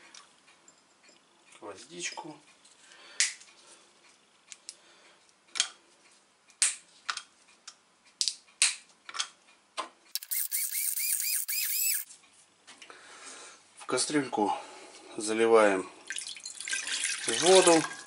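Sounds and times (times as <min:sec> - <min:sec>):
coffee grinder buzzing: 0:10.2 - 0:12.1.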